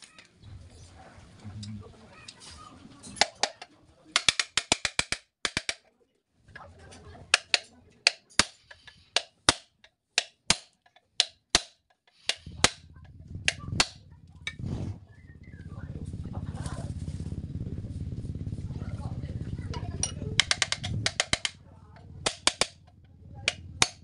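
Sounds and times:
hammer striking rivets: 0:04.2 - 0:05.8, 0:07.4 - 0:12.8, 0:20.4 - 0:21.6, 0:22.2 - 0:22.9.

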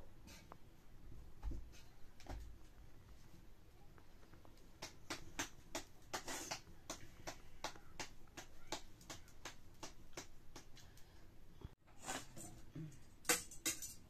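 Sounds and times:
hands patting dough: 0:04.0 - 0:11.0.

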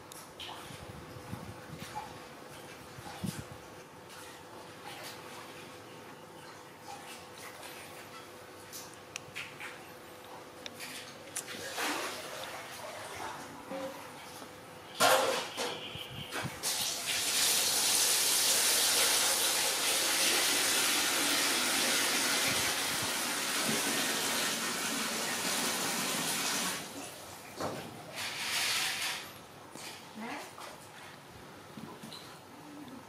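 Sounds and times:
water gushing: 0:11.5 - 0:13.6, 0:16.6 - 0:29.3
water running with a hiss: 0:16.6 - 0:27.5, 0:28.1 - 0:30.4.

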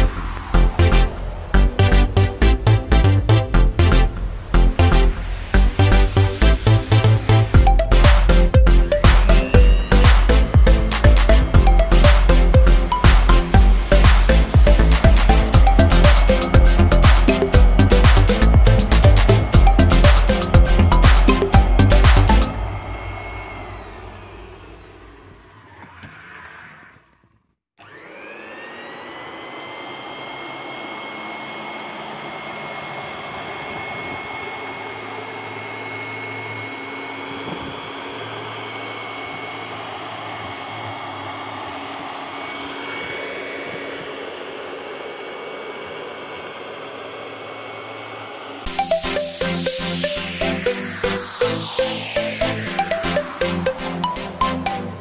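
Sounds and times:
background music: 0:00.0 - 0:23.3, 0:48.7 - 0:55.0
cloth cutting machine whining: 0:00.0 - 0:27.2, 0:27.8 - 0:55.0.

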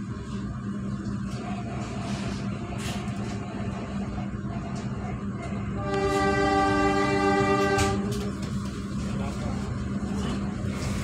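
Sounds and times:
train rumbling inside coach: 0:00.0 - 0:11.0
locomotive horn blast: 0:05.7 - 0:08.2.

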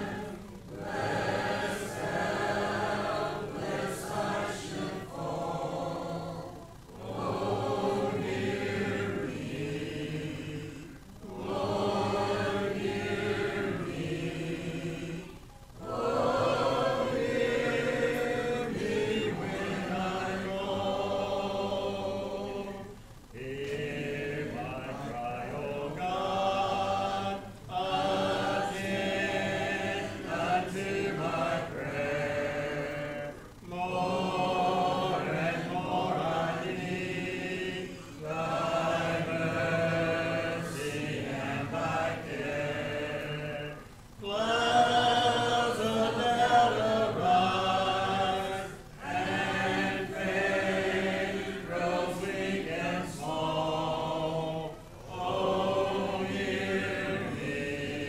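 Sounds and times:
congregation singing a hymn: 0:00.0 - 0:58.0.

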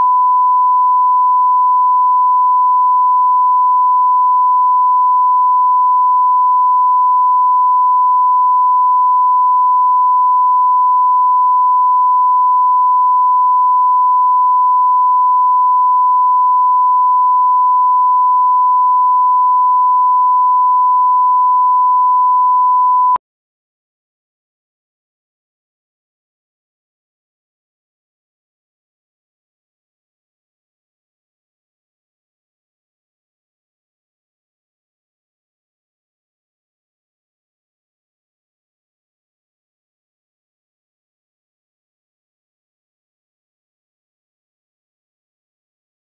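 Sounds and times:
pure reference tone: 0:00.0 - 0:23.2.

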